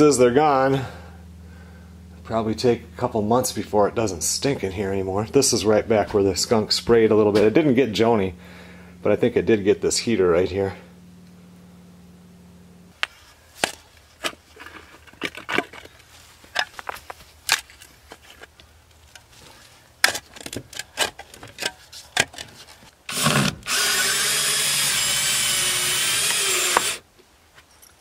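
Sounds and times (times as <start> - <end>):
power drill running: 23.1 - 27.0.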